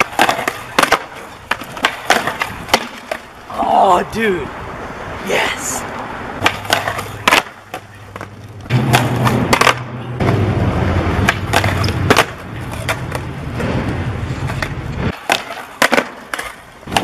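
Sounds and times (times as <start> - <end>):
skateboard landing clacks: 0.0 - 3.3, 6.4 - 10.4, 11.2 - 17.0
skateboard wheels rolling: 0.0 - 3.8, 4.8 - 17.0
skateboard tail pop: 14.5 - 17.0.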